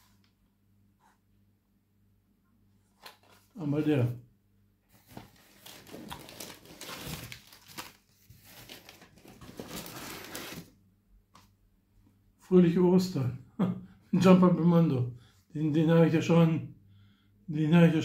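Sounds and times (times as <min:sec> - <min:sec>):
packaging rustling and crinkling: 0:04.9 - 0:10.8.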